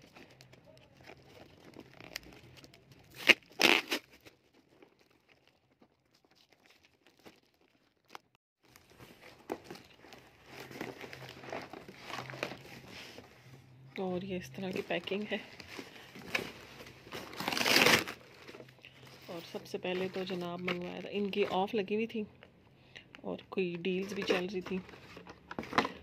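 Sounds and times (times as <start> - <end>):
packing tape ripping: 0.0 - 5.4, 17.1 - 18.6.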